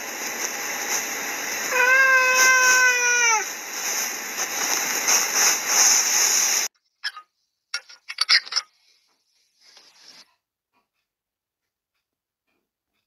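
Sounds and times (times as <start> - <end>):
steady hiss: 0.0 - 6.7.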